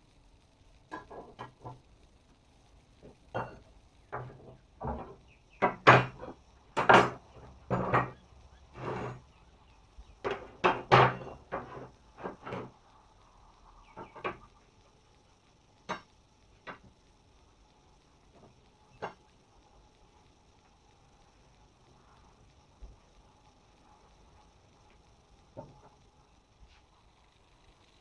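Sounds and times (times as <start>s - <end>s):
metal bars knocking on workbench: 4.2s - 8.2s, 10.3s - 12.7s.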